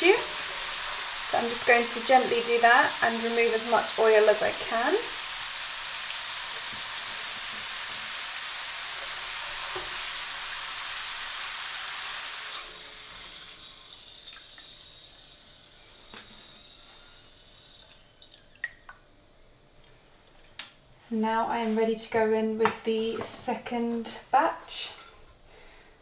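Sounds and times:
potato chips sizzling in hot oil: 0.0s - 18.2s.

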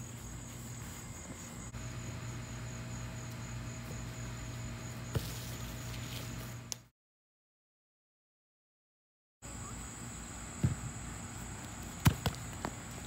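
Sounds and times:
insects trilling: 0.0s - 6.6s
ball kicked thud: 10.6s - 10.9s, 12.0s - 12.7s.

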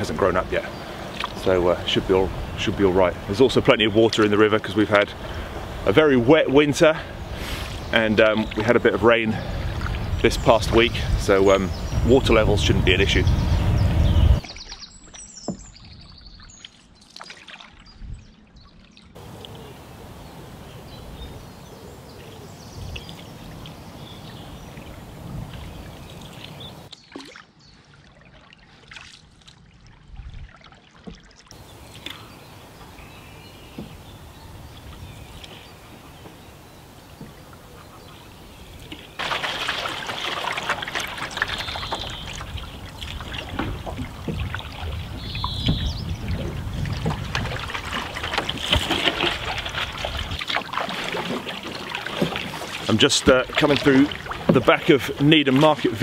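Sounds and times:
canoe paddle strokes in water: 0.0s - 56.0s
water trickling and dripping: 22.2s - 56.0s.

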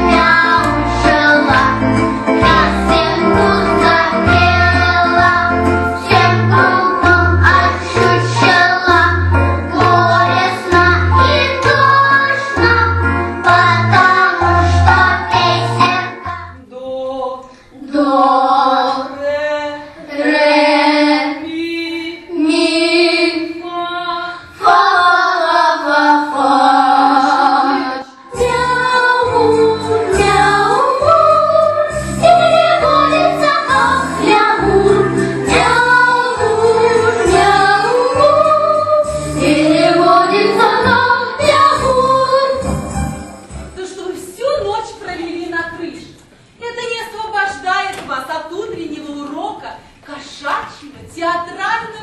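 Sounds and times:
girls singing into microphones: 0.0s - 16.6s, 17.5s - 42.8s
backing music: 0.0s - 16.7s, 24.6s - 45.8s.

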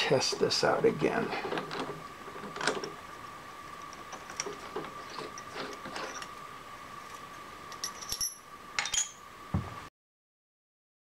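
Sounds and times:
metal tools clinking: 3.8s - 6.3s, 7.0s - 9.2s.

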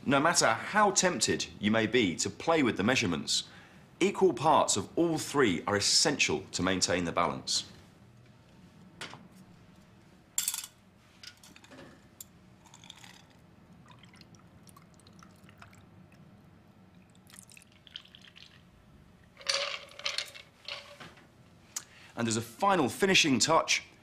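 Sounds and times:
ice clinking against glass: 12.6s - 13.4s
liquid trickling and dripping: 12.6s - 19.5s.

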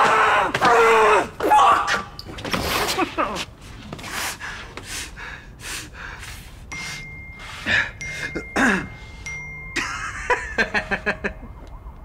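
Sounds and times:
man breathing: 4.0s - 9.3s.

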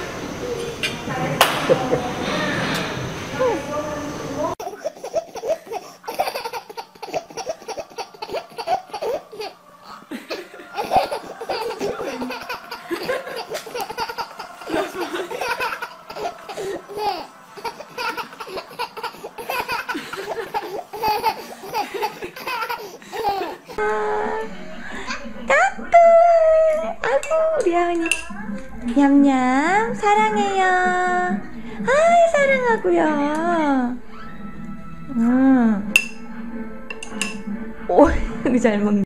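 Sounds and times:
baby laughing: 4.6s - 23.8s.

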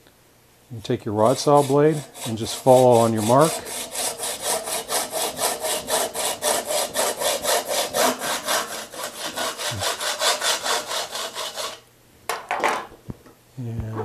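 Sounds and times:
hacksaw cutting shaft: 1.2s - 11.8s.

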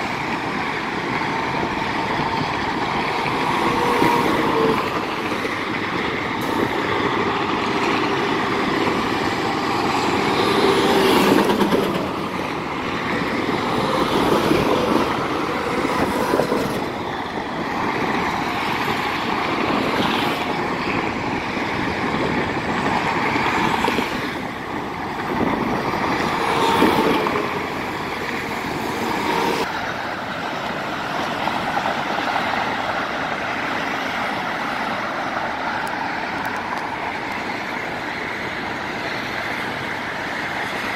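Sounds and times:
freeway traffic rushing: 0.0s - 40.9s.

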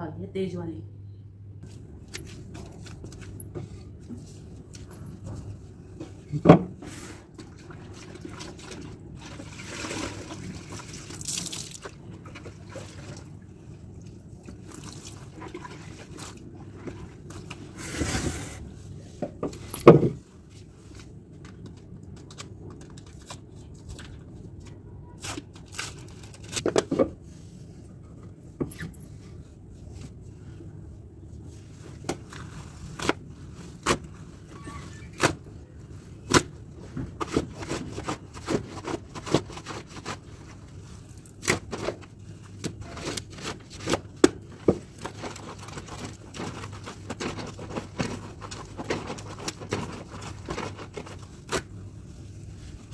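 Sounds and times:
water splashing and dripping: 7.5s - 13.2s
wet fabric rubbed and slapped: 45.0s - 51.7s.

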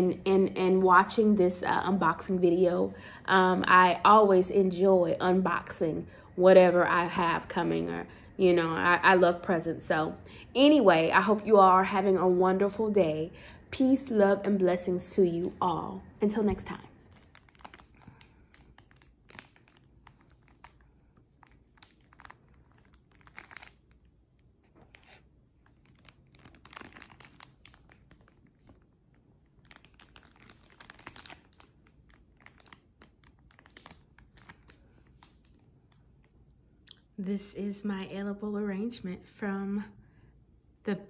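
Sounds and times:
cellophane wrap crinkling: 16.3s - 36.5s.

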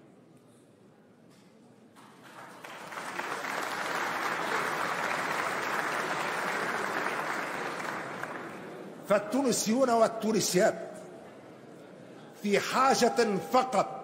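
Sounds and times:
people clapping: 2.0s - 8.8s.

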